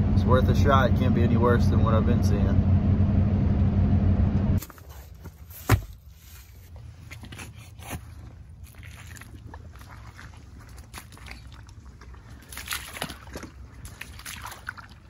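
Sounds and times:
steady low rumble: 0.0 - 4.6
footsteps sloshing through wet mud: 5.9 - 15.0.

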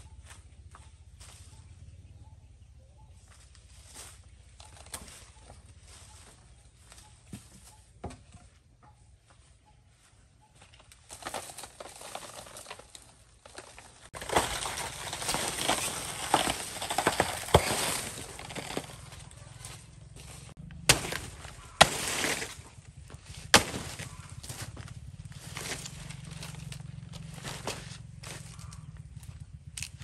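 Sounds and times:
leaves rustling and tearing: 11.1 - 28.8.

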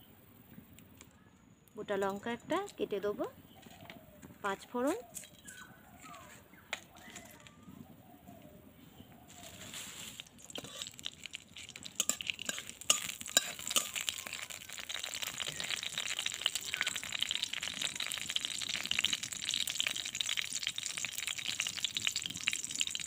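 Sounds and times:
spices sizzling in hot oil: 9.2 - 23.0.

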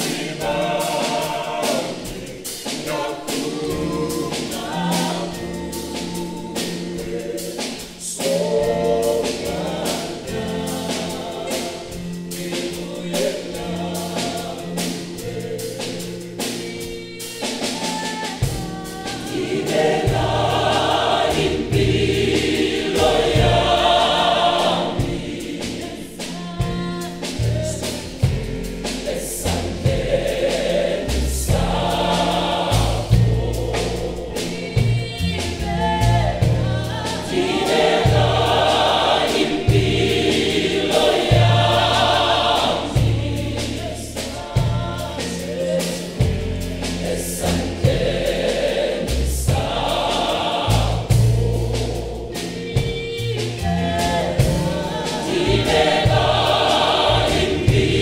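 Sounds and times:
drums: 0.0 - 58.0
gospel choir singing: 0.0 - 58.0
bass guitar: 27.4 - 37.1, 41.3 - 58.0.

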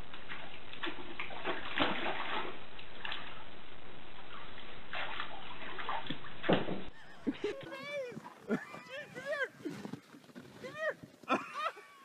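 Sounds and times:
water splashing in pool: 0.0 - 9.0.

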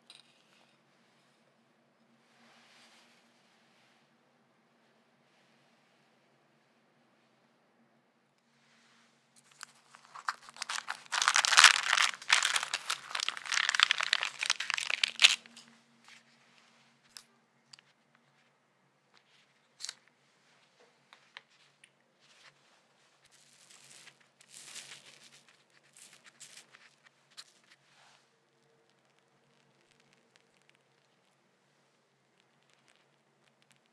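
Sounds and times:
baking paper crinkling: 9.4 - 15.7, 23.2 - 27.8.

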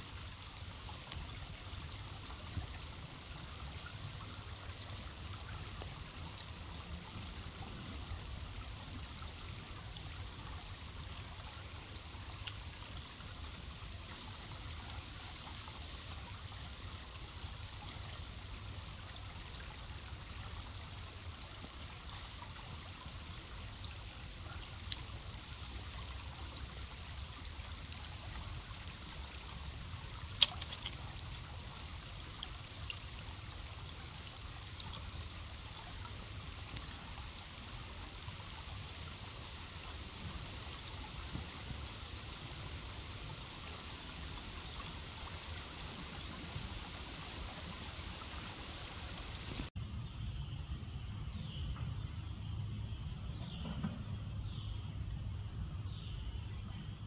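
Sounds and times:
stream trickling over rocks: 0.0 - 57.0
sharp click: 30.4 - 31.0.

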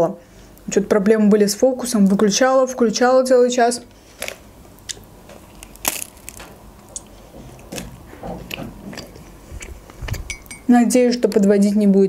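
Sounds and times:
chewing mouth sounds: 8.4 - 10.3.

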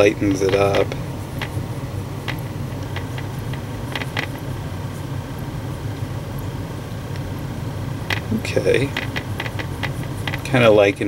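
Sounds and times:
low mechanical hum: 0.0 - 11.0
paintbrush clicking in palette: 2.3 - 4.4, 8.1 - 8.3, 8.9 - 10.4.

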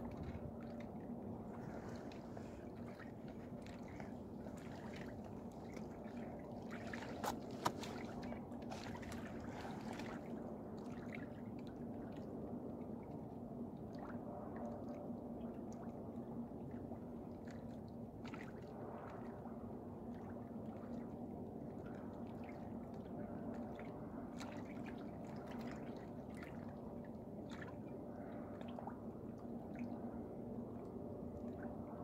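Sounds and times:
small splashes and clicks: 0.0 - 11.8
water sloshing and dripping: 0.0 - 19.5, 20.1 - 32.0
steady low hum: 0.0 - 32.0.

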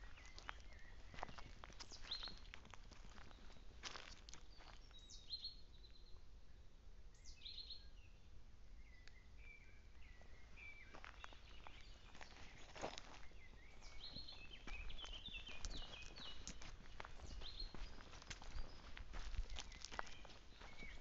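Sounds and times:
footsteps on dry forest floor: 0.0 - 5.2, 10.0 - 21.0
songbirds chirping and whistling: 0.0 - 21.0.

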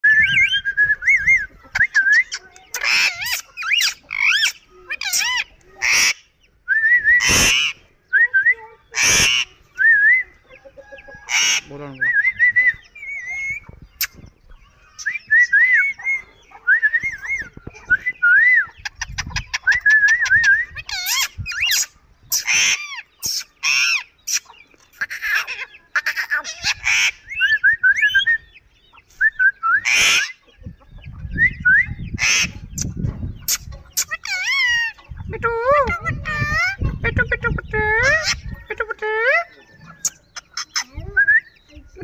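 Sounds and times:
parakeets warbling chirps: 1.4 - 11.9, 12.7 - 18.0, 18.6 - 29.0, 29.8 - 42.0
parakeets harsh screeches: 2.8 - 6.2, 20.9 - 24.4.

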